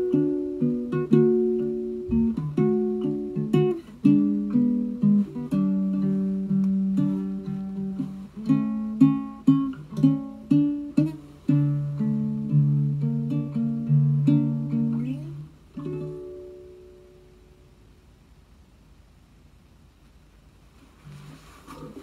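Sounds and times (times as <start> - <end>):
ukulele plucked melody: 0.0 - 17.8.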